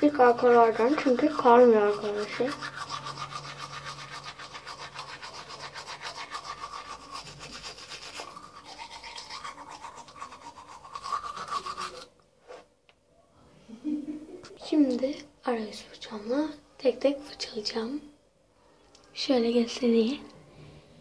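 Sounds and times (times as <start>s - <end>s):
toothbrush scrubbing teeth: 0.0s - 12.1s.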